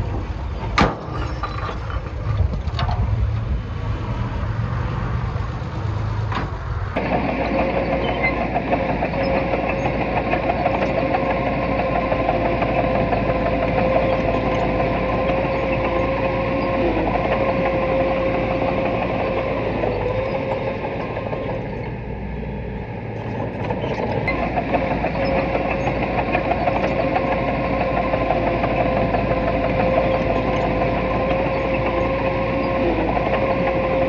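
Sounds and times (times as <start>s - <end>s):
diesel engine rumble: 0.0s - 34.0s.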